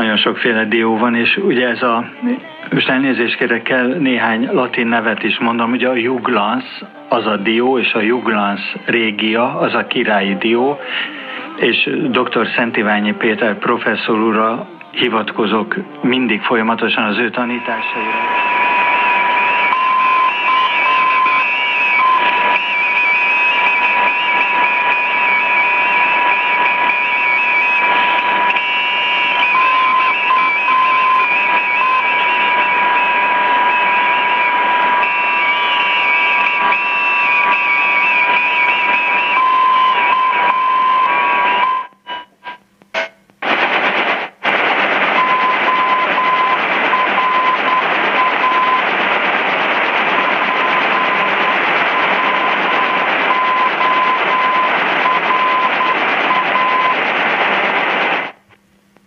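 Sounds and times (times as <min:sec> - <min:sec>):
steady high radio tone: 0:00.0 - 0:58.5
radio static hiss: 0:00.0 - 0:59.0
morse code beeps: 0:17.6 - 0:43.2, 0:45.2 - 0:48.9, 0:50.0 - 0:57.0.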